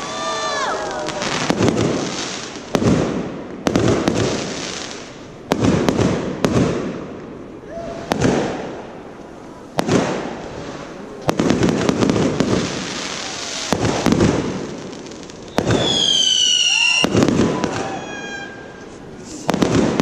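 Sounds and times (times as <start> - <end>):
fireworks bangs: 0.0 - 20.0
fireworks crackling: 0.0 - 20.0
whistling firework: 7.6 - 8.8, 11.8 - 20.0.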